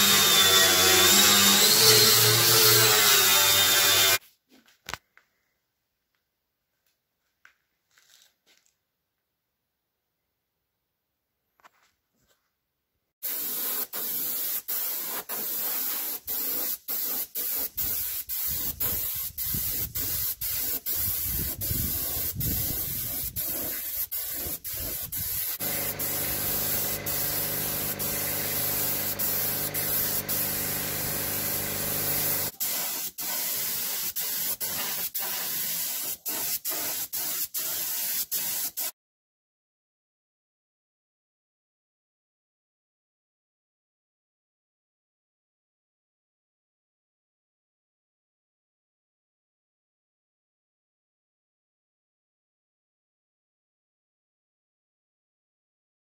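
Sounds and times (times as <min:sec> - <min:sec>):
paint spray gun hissing: 0:13.2 - 0:38.9.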